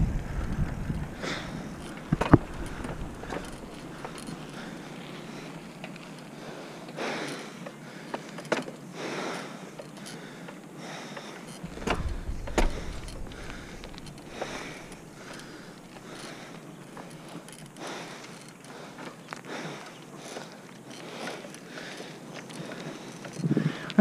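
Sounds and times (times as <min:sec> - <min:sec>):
bike clicks and knocks: 0:00.0 - 0:06.4, 0:07.2 - 0:08.9, 0:09.7 - 0:24.0
bicycle road noise on asphalt: 0:00.0 - 0:24.0
low rumbling burst: 0:11.6 - 0:15.8.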